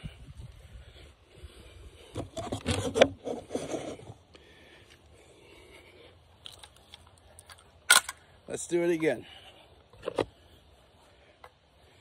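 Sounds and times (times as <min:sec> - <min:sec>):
handling noise rubbing microphone: 0:02.0 - 0:04.2.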